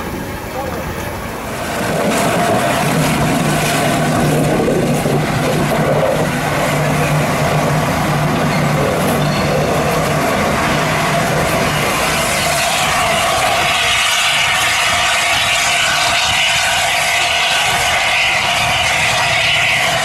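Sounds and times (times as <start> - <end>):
steam locomotive moving slowly: 0.0 - 20.0
hiss of escaping steam: 10.5 - 20.0.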